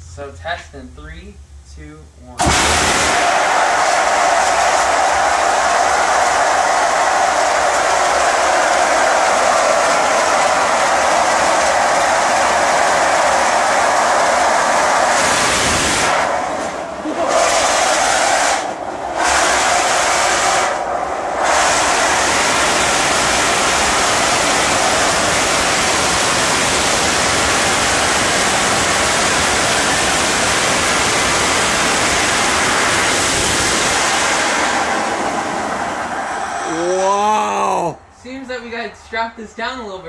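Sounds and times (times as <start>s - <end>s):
rocket motor steam hissing: 7.1s - 36.9s.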